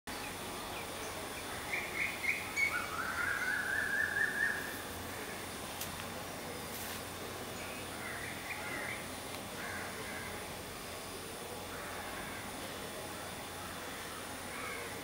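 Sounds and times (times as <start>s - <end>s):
steady background hiss: 0.1s - 15.0s
bird chirping and calling: 1.6s - 4.7s.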